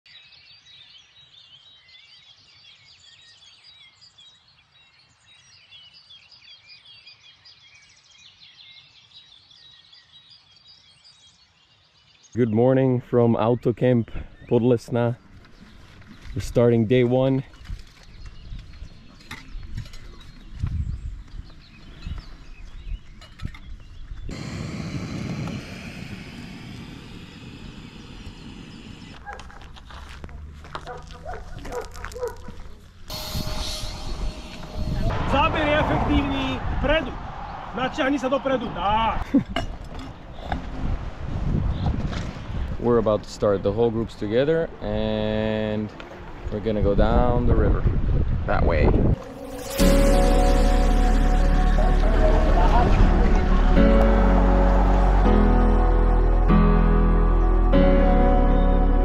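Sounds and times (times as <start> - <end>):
songbirds chirping and trilling: 0.1 - 24.6, 25.7 - 29.7
gas stove burner hissing roar: 24.3 - 29.2.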